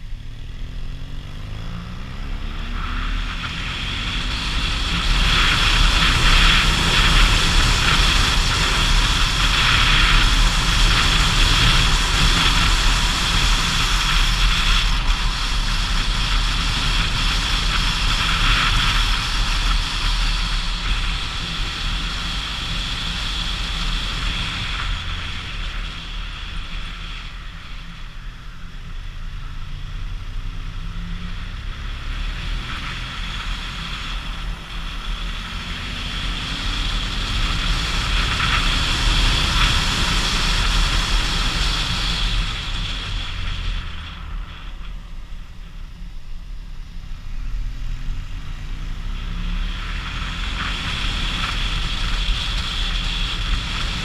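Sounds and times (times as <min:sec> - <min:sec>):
motorcycle engine: 0:00.0 - 0:54.0.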